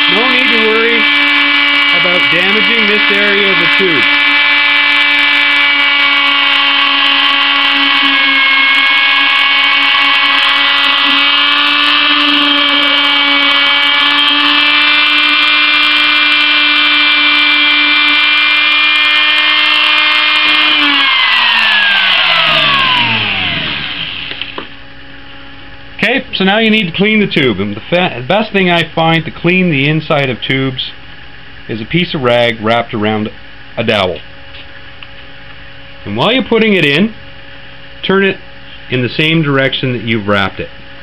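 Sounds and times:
rotary tool whining: 0:00.0 - 0:24.8.

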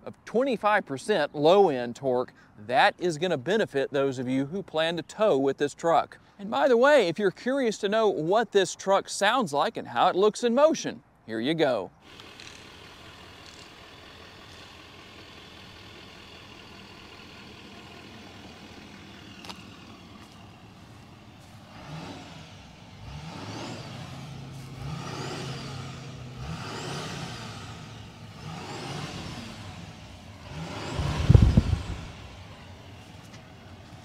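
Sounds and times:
diesel engine idling and revving: 0:12.0 - 0:34.0
low exhaust blast: 0:12.1 - 0:34.0.

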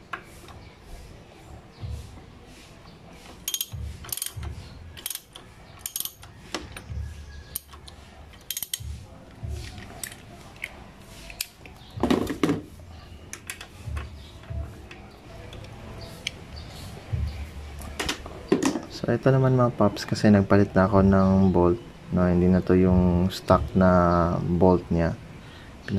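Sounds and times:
ratchet wrench clicking: 0:03.4 - 0:09.0.

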